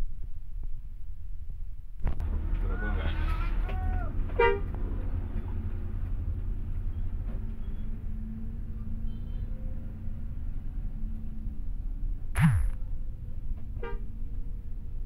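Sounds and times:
bus engine low rumble: 0:00.0 - 0:15.0
brief pitched note: 0:12.4 - 0:12.8.

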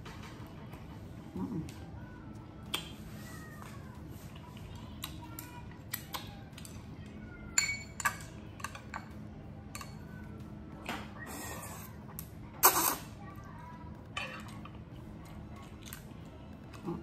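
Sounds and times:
ringing clink: 0:07.6 - 0:08.8
chopsticks clinking on dishes: 0:07.6 - 0:10.1.

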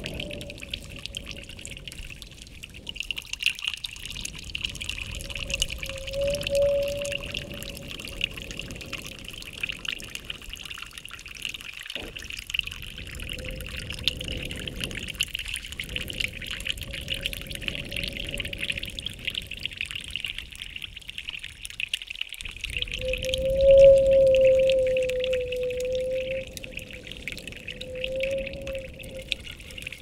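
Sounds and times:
water trickling: 0:00.0 - 0:30.0
faint held tone: 0:05.7 - 0:07.8.

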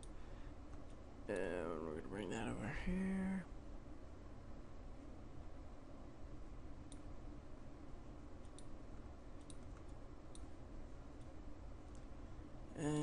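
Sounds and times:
low hiss: 0:00.0 - 0:13.0
faint computer mouse clicks: 0:06.9 - 0:07.1, 0:08.4 - 0:08.8, 0:09.4 - 0:10.5.

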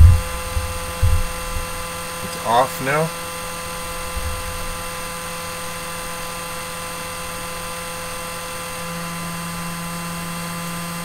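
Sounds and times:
cooling fan hum and whine: 0:00.0 - 0:11.0
low buzz: 0:00.0 - 0:11.0.

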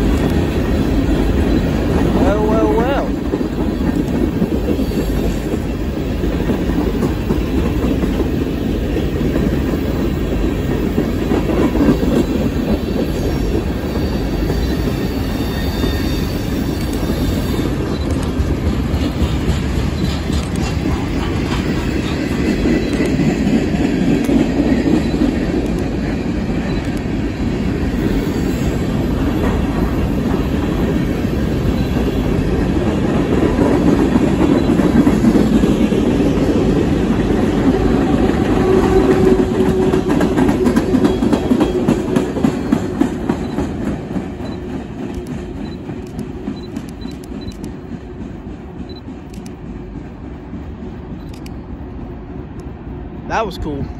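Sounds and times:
train wheels rumbling on rails: 0:00.0 - 0:53.9
high wheel squeal: 0:11.8 - 0:18.1.

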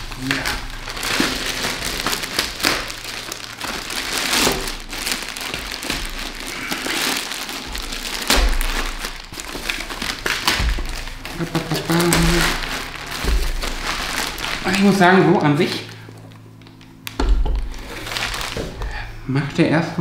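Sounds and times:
plastic packaging crinkling: 0:00.0 - 0:19.6
dull low thumps: 0:10.1 - 0:11.4.

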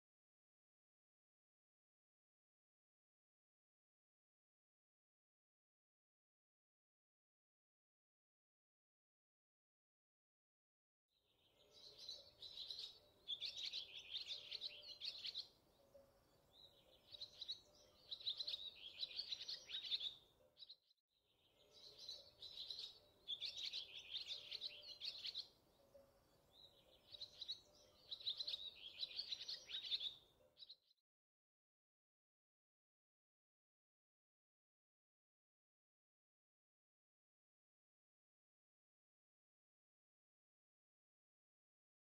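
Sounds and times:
birds chirping: 0:11.4 - 0:20.8, 0:21.4 - 0:30.8.

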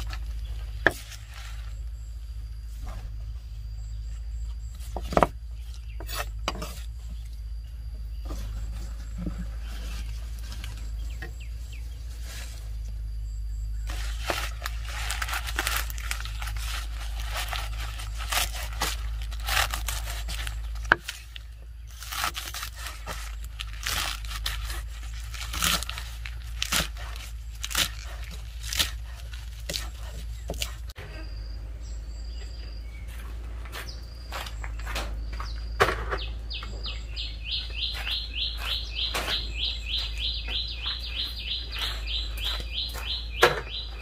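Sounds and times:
leaves rustling and tearing: 0:00.0 - 0:02.0, 0:08.3 - 0:13.1, 0:13.8 - 0:31.0
birds chirping: 0:00.0 - 0:44.0
steady low hum: 0:00.0 - 0:44.0.

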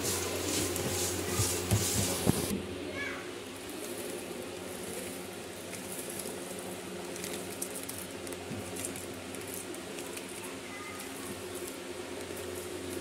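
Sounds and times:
steady low hum: 0:00.0 - 0:13.0
foil cereal bag crinkling: 0:03.8 - 0:13.0.

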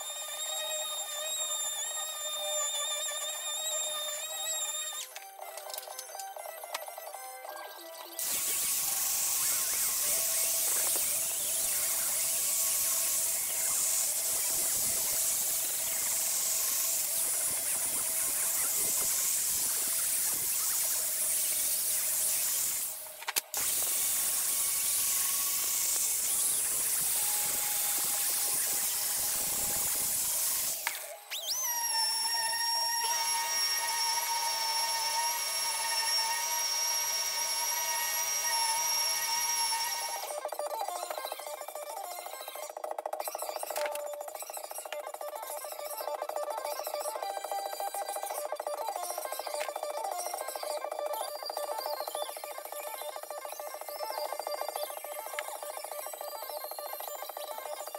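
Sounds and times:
angle grinder grinding metal: 0:00.0 - 0:06.9, 0:08.1 - 0:41.2
small grinder high-pitched whine: 0:00.0 - 0:57.9.

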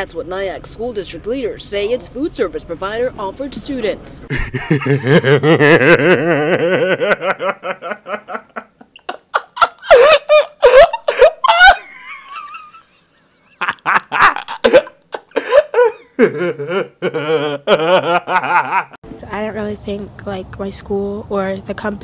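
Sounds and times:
man laughing hard: 0:04.3 - 0:19.0.

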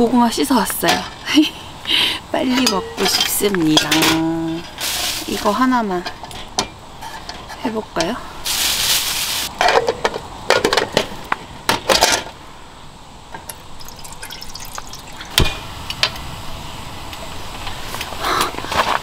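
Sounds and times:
water pouring into metal tin: 0:13.5 - 0:15.5.

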